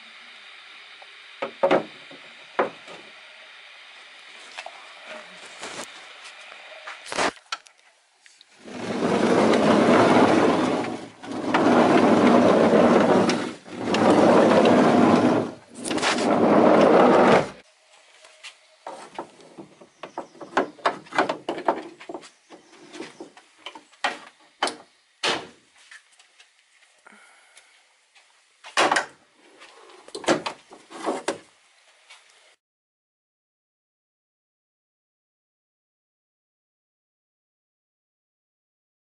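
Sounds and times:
sliding seat rolling rumble: 8.6s - 17.6s.

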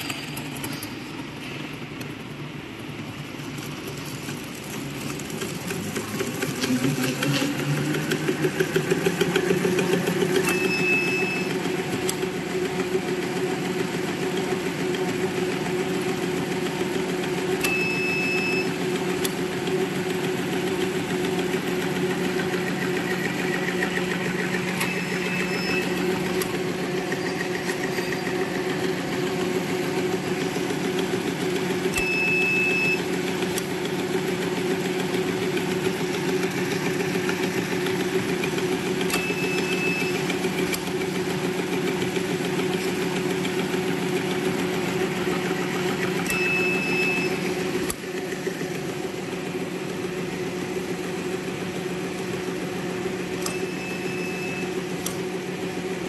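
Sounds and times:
machine humming: 0.0s - 56.0s
brief high tone: 10.4s - 11.6s, 17.6s - 18.8s, 24.6s - 26.4s, 46.3s - 47.5s, 53.4s - 54.8s.

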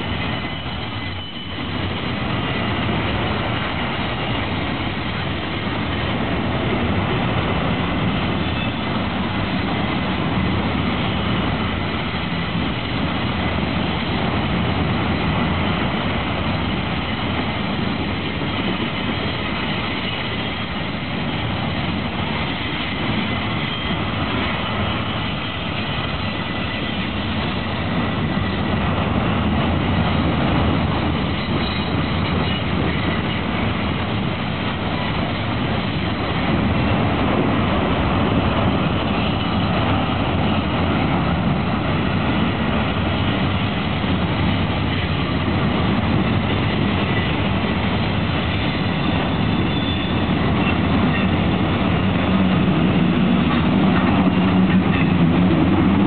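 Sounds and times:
freight train rumbling past: 0.0s - 56.0s.

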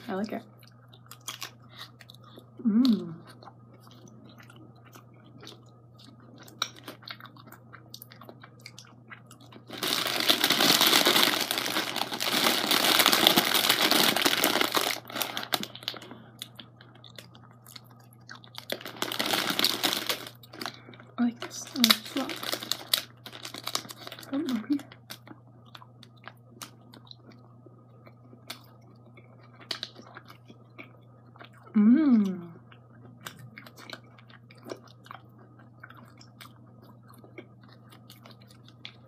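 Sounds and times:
quiet chewing: 0.5s - 10.0s, 15.0s - 21.5s, 22.5s - 39.0s
plastic bag crinkling: 9.5s - 16.2s, 18.6s - 24.8s.

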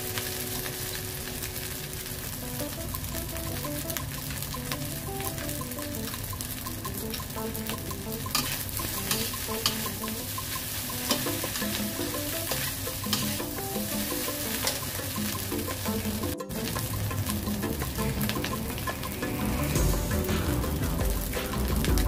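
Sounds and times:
rice sizzling in wok: 0.0s - 22.0s
metal spatula clanking on wok: 8.1s - 18.9s.

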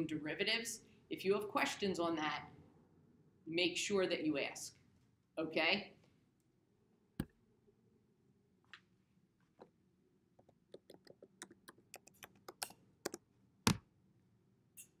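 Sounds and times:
clicks and taps on device: 10.4s - 13.8s.

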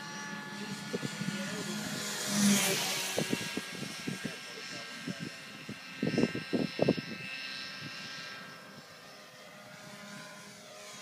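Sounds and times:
quadcopter rotors whining: 0.0s - 11.0s.

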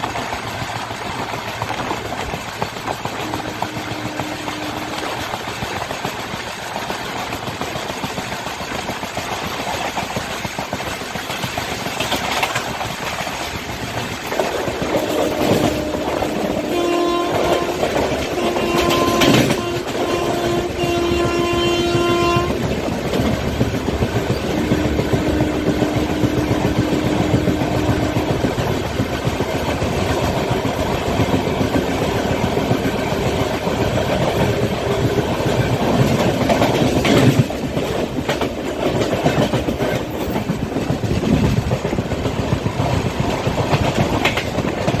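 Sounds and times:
freight train passing: 0.0s - 45.0s
train wheels clickety-clack: 0.0s - 45.0s
train horn: 3.1s - 5.4s, 14.8s - 22.8s, 24.4s - 28.9s.

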